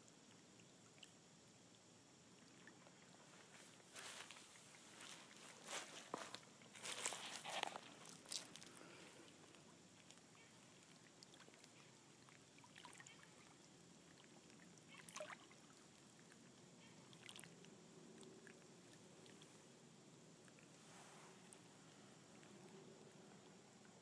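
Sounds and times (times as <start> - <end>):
lake water lapping at shore: 2.4 - 17.6
small water splashes: 6.6 - 17.7.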